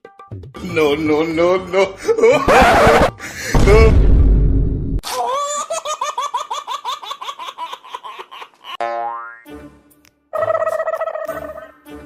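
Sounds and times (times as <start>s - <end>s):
deep rumble: 3.6s - 5.0s
high-pitched laughing effect: 10.4s - 11.8s.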